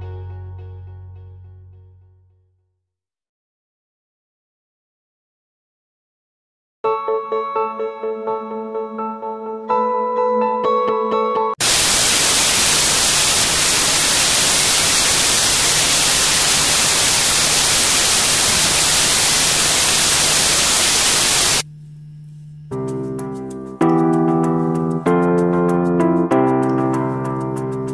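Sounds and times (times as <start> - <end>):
loud static hiss: 11.6 - 21.7
faint low hum: 12.9 - 22.7.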